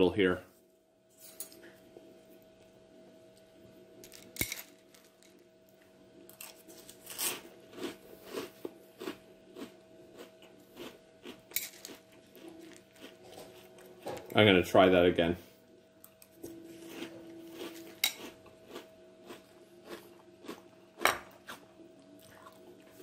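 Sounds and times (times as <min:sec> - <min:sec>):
person chewing cereal: 0:06.4 - 0:14.0, 0:16.3 - 0:23.0.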